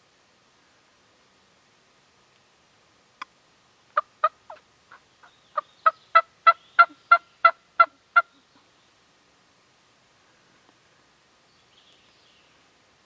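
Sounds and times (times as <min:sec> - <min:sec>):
turkey calls: 0:04.0 - 0:08.7.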